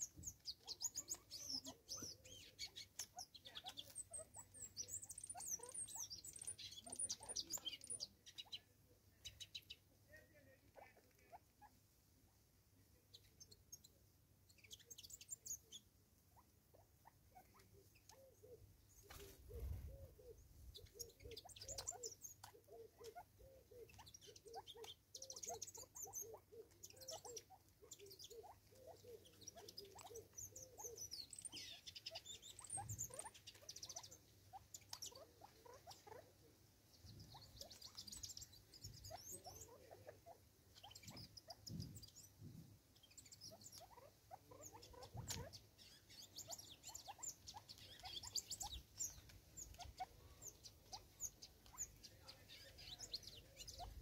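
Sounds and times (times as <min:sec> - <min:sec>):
small birds chirping: 0:00.0 - 0:54.0.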